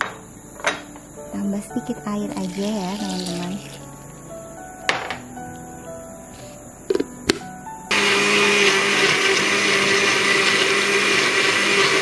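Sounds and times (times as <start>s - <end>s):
electric blender running: 7.9s - 12.0s.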